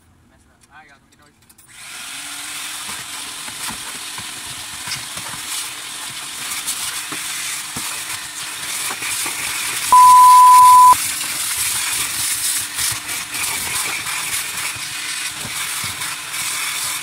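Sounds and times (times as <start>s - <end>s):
loud steady beep: 9.9s - 11.0s.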